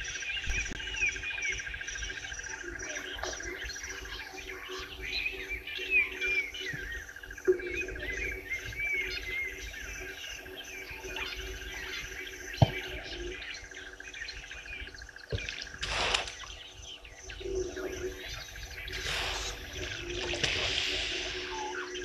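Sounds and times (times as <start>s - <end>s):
birds chirping and calling: 0.0s - 22.0s
sharp clicks: 15.4s - 16.5s
short bursts of noise: 15.8s - 16.5s, 19.0s - 21.8s.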